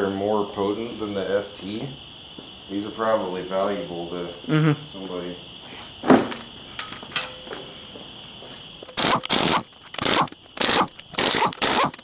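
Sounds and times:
pneumatic impact wrench: 0:08.9 - 0:12.0.

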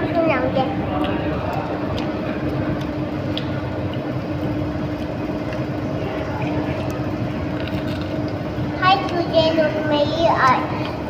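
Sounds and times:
ventilation hum: 0:00.0 - 0:11.0.

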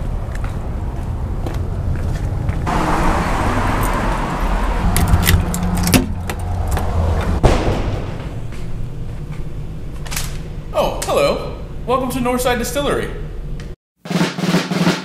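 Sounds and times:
car passing: 0:00.0 - 0:09.2.

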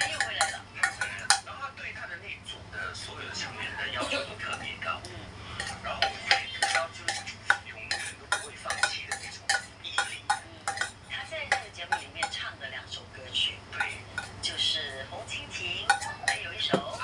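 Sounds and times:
cutlery clinking on a dish: 0:00.0 - 0:01.5, 0:05.6 - 0:12.4, 0:15.9 - 0:17.0.

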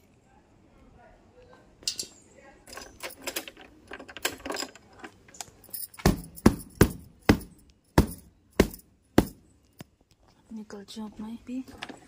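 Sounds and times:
light rustling and clinking: 0:01.8 - 0:10.5, 0:11.1 - 0:12.0.

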